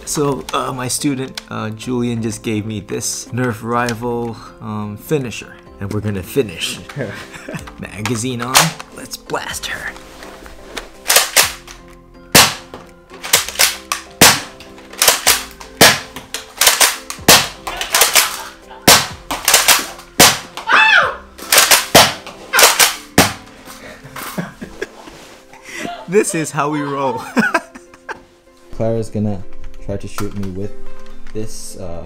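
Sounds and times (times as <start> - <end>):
toy blasters firing snaps: 11.1 - 11.8, 12.4 - 12.6, 13.3 - 16.0, 16.6 - 20.5, 21.5 - 23.4.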